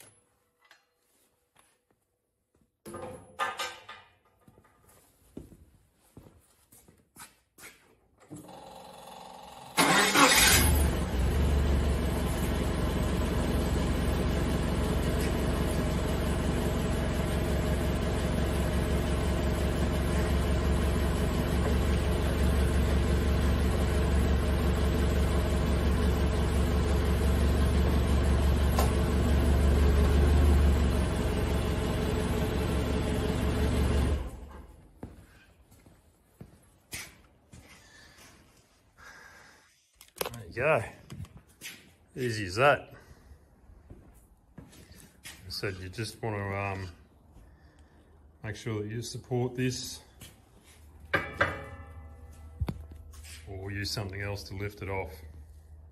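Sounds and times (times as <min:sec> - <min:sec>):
forklift engine cranking: 0:08.3 - 0:34.6
forklift engine idling: 0:08.4 - 0:34.7.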